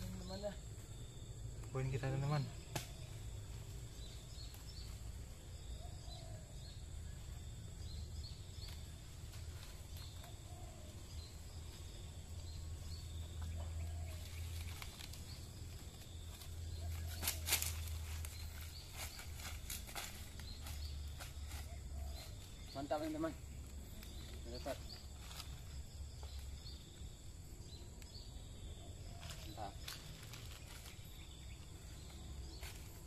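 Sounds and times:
faint bird chirps: 0.0 - 33.0
dry leaves crackling underfoot: 7.8 - 27.0, 29.0 - 33.0.

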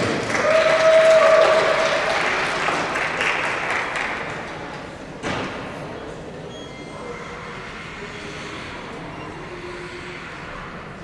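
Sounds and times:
audience applause: 0.0 - 4.8.

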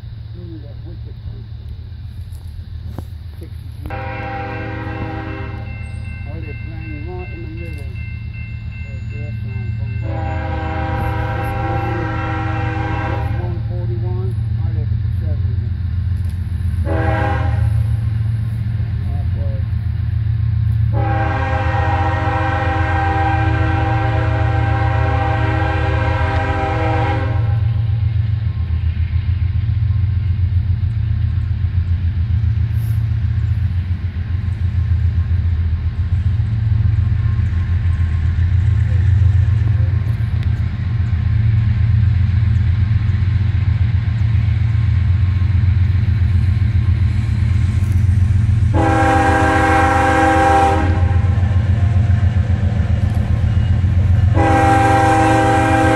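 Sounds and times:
train rumble: 0.0 - 55.9
locomotive air horn chord: 3.8 - 5.8, 10.0 - 13.6, 16.8 - 17.8, 20.9 - 27.8, 48.7 - 51.6, 54.2 - 55.9.

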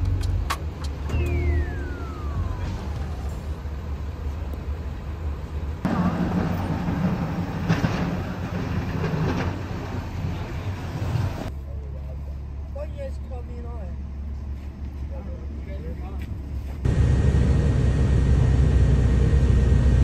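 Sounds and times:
snowplow trucks rumbling: 0.0 - 11.5, 16.9 - 20.0
traffic engines rumbling: 0.0 - 20.0
tone sliding down in pitch: 1.1 - 3.6.

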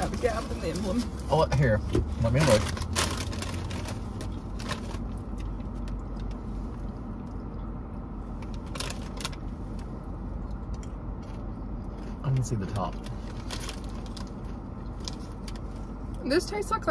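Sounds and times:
low rumble inside car: 0.0 - 16.9
plastic chip bag crackling: 2.2 - 5.2.

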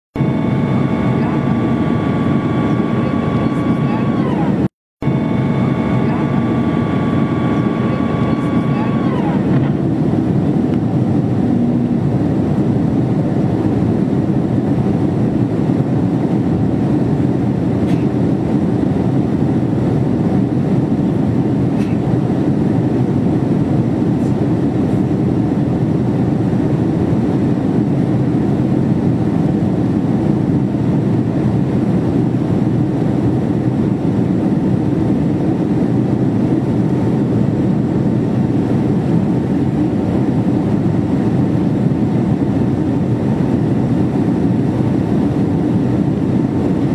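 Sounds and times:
airplane cabin airflow and engines: 0.2 - 46.9.

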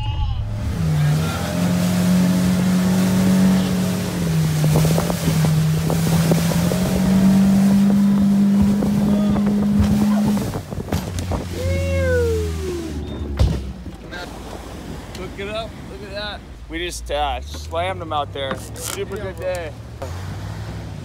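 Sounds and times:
outboard motor running: 0.4 - 20.8
wind noise: 4.2 - 15.1
water knocking against hull: 4.3 - 11.6, 13.2 - 14.2.

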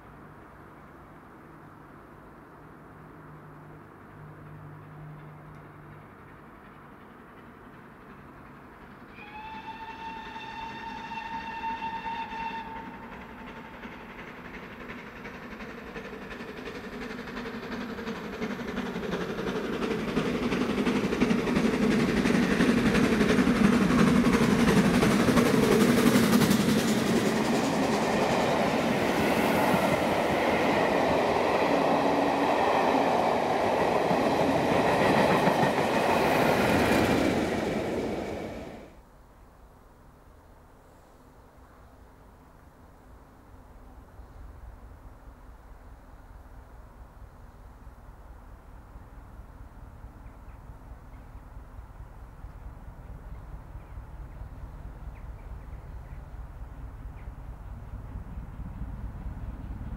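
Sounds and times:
diesel locomotive passing: 0.0 - 39.1, 41.9 - 59.9
steam locomotive working: 4.4 - 39.0
steam locomotive whistle: 9.1 - 14.1.

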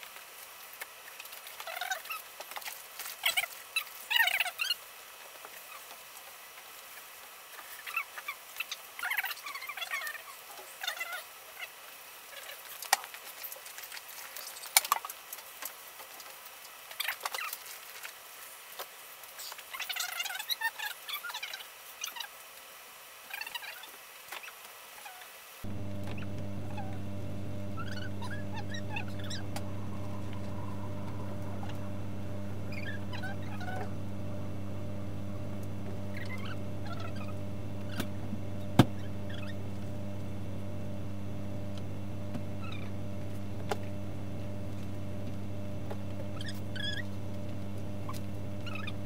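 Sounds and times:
steady electrical hum: 25.7 - 49.0.

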